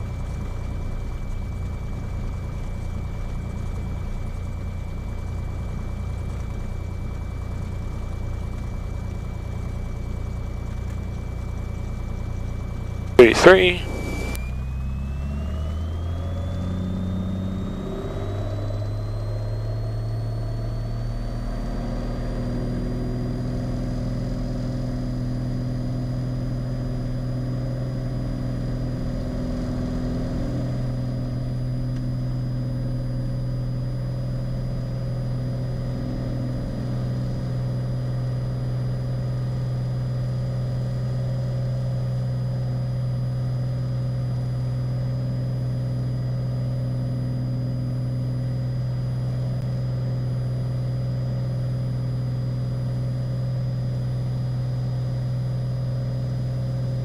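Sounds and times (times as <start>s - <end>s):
propeller plane engine drone: 0.0s - 57.0s
faint high whine: 11.6s - 57.0s.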